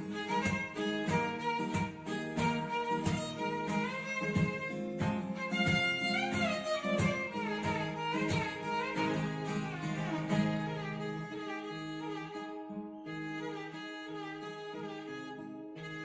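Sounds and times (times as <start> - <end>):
plucked strings: 0.0 - 15.0
violin melody: 0.0 - 16.0.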